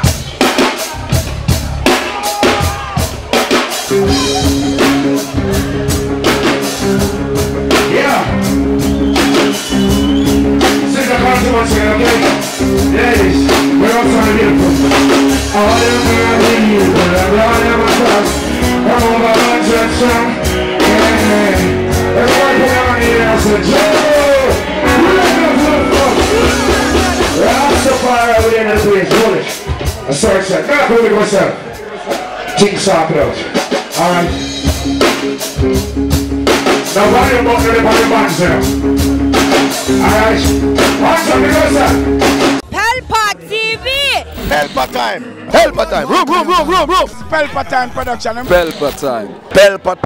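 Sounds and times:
bass line: 0.0 - 31.4, 34.0 - 49.0
held chords: 3.9 - 29.2
person singing: 10.8 - 28.0.

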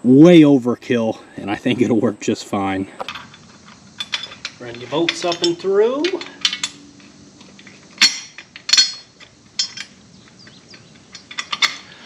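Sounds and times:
metal parts clinking: 3.0 - 12.0.

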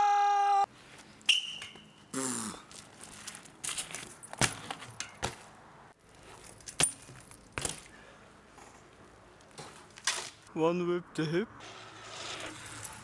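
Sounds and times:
person shouting: 0.0 - 0.7
tyres rolling on pavement: 11.6 - 13.0.

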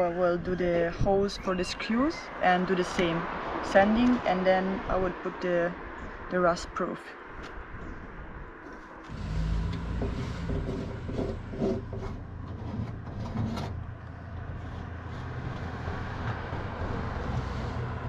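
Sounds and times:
low engine hum: 7.6 - 18.0.

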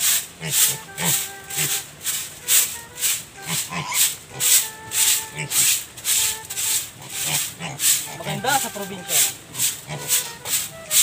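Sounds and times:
broom sweeping wet floor: 0.0 - 11.0.

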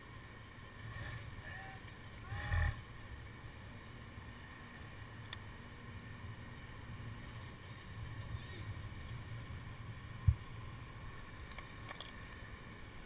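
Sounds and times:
wind rumbling on microphone: 6.9 - 11.9.

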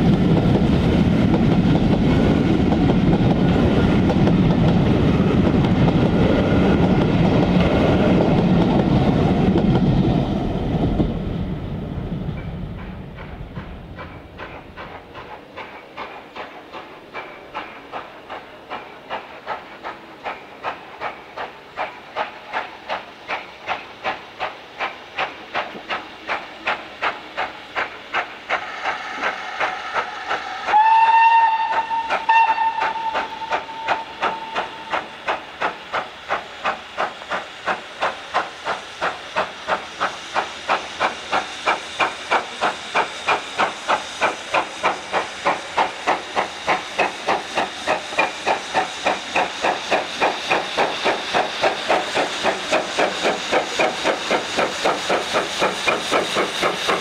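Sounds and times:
steam locomotive exhaust beats: 0.0 - 57.0
steam locomotive whistle: 28.9 - 35.2.

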